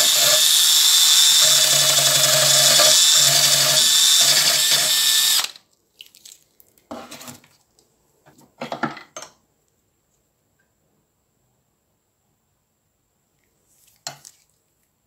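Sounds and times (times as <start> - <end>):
drill wire wheel whirring: 0.0 - 5.6.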